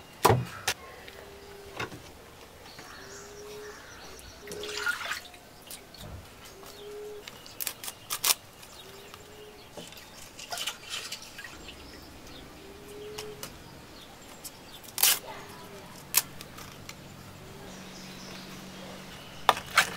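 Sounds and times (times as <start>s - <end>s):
bird calling low note: 2.8s - 7.6s, 11.4s - 16.2s
hands mixing wet fish: 3.7s - 13.6s.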